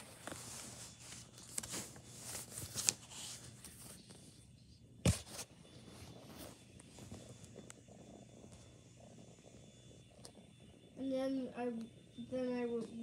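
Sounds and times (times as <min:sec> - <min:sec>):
paper pages rustling: 0:00.0 - 0:04.3.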